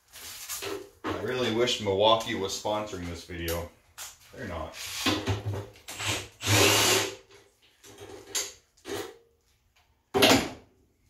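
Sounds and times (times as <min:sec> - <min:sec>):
cordless drill bursts: 0:04.8 - 0:05.1, 0:05.9 - 0:07.2.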